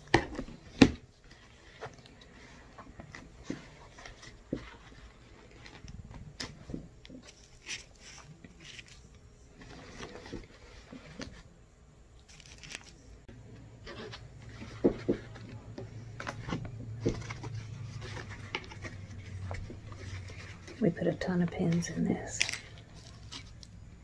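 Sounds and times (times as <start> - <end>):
fabric rustles: 13.8 - 24.0.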